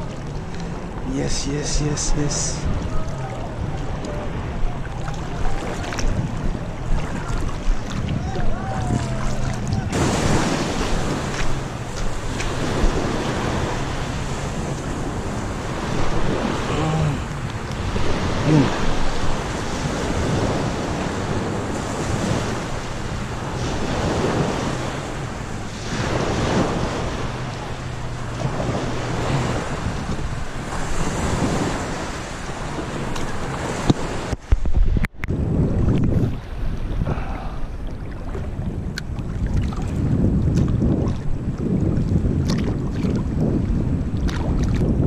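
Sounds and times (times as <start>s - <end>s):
small waves washing on shore: 0.0s - 45.0s
wind on microphone: 0.0s - 45.0s.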